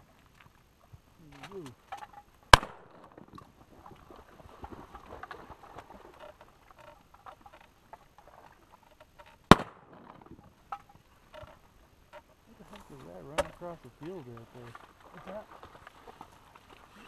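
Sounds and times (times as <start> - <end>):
shotgun blasts: 2.5 - 3.0, 9.5 - 10.1.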